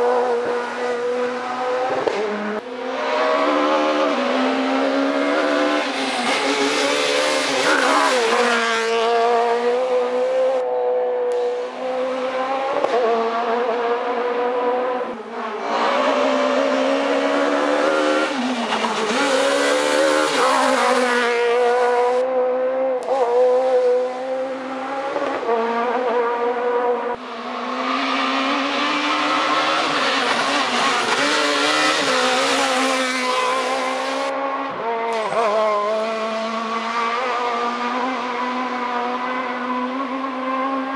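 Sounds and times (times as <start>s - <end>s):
rally car engines revving past: 0.0s - 40.9s.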